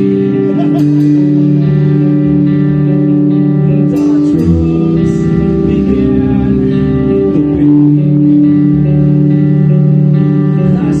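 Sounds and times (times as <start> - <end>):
person singing: 0.0 - 2.4, 3.5 - 11.0
bass guitar: 0.0 - 11.0
electric guitar chords: 0.0 - 11.0.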